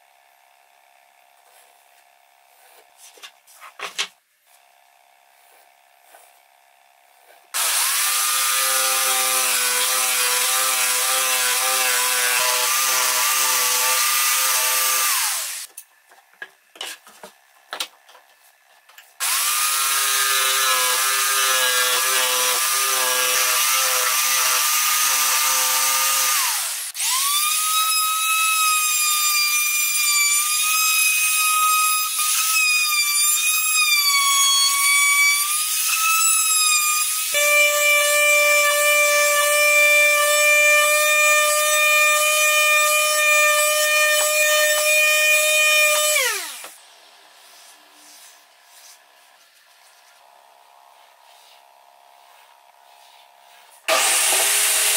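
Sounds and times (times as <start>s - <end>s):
electric jigsaw cutting wood: 4.5s - 15.7s, 19.2s - 46.8s, 53.8s - 54.9s
trim router whining: 42.2s - 46.8s, 53.8s - 54.9s.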